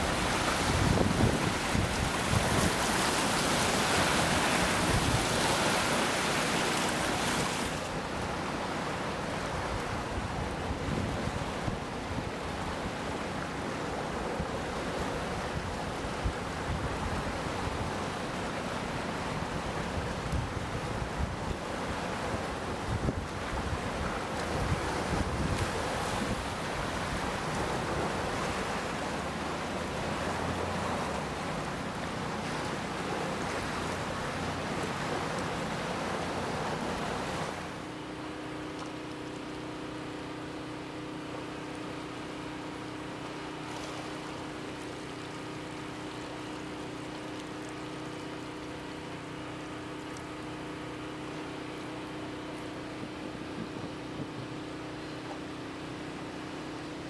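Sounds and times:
wind on microphone: 0.0 - 3.1, 22.8 - 27.2
rushing floodwater: 0.0 - 57.0.

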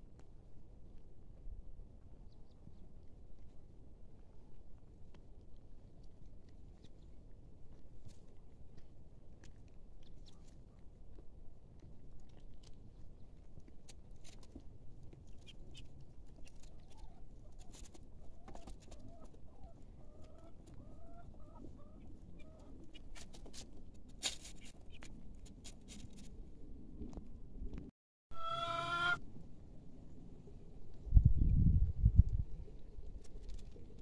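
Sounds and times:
chickens clucking: 18.3 - 23.0.

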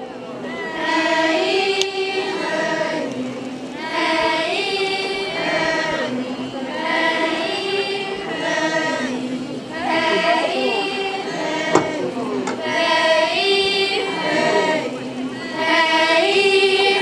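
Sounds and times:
children singing together: 0.4 - 17.0.

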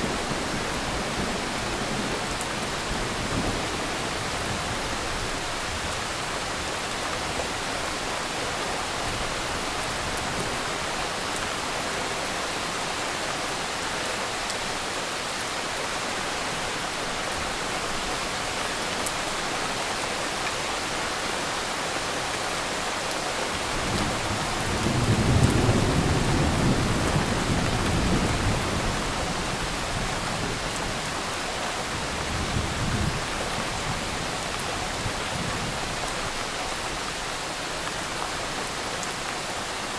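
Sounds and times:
steady rain falling: 0.0 - 39.9
low rumble of thunder: 23.8 - 30.7.

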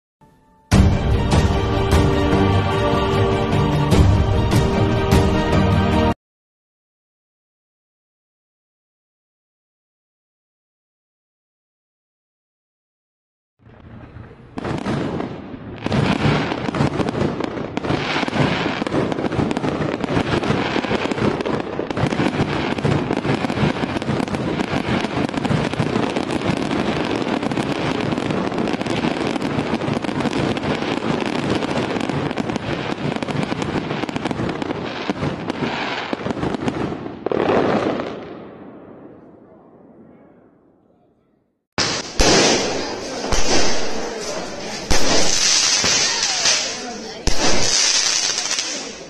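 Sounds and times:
fireworks crackling: 13.6 - 39.2, 41.8 - 49.0
fireworks shells bursting: 41.8 - 49.0.

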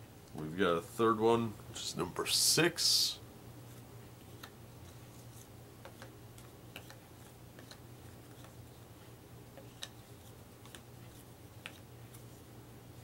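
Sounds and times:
low room hum: 0.0 - 13.0.

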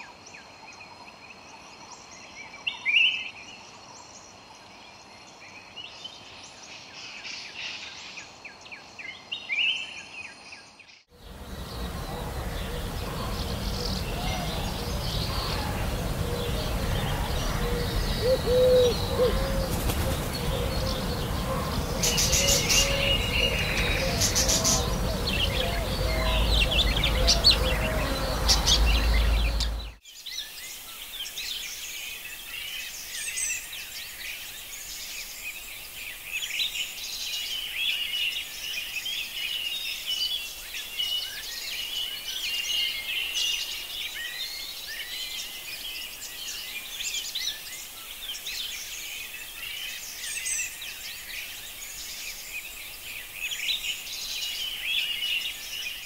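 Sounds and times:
birds chirping: 11.2 - 30.0.

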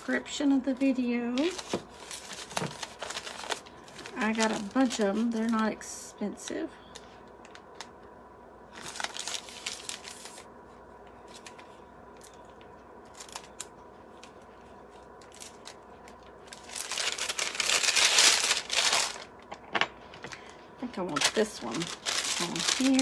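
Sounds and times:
plastic bag crinkling: 1.3 - 5.7, 8.7 - 10.5, 11.2 - 19.5, 20.3 - 23.0.

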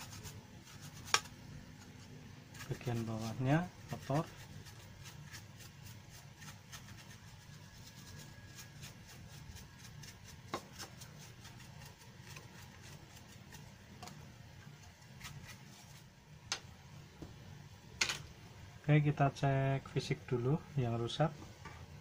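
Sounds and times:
paintbrush bristle strokes: 0.0 - 1.3, 2.0 - 13.9, 14.7 - 16.2.

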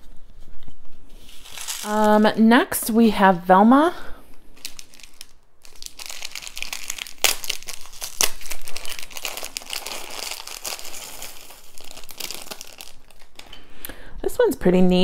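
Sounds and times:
plastic bag crinkling: 1.2 - 2.4, 4.5 - 13.8
sharp plastic crackles: 4.6 - 13.6.

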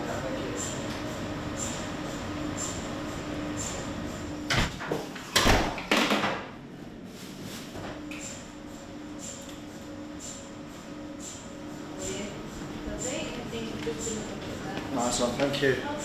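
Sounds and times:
mri scanner pulsed tone: 0.0 - 4.5, 8.1 - 16.0.

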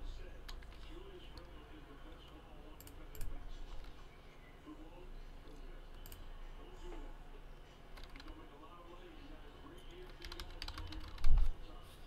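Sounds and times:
low steady hum: 0.0 - 12.0
computer mouse clicks: 5.9 - 6.2
keyboard clicks: 8.0 - 8.4, 10.0 - 11.5.

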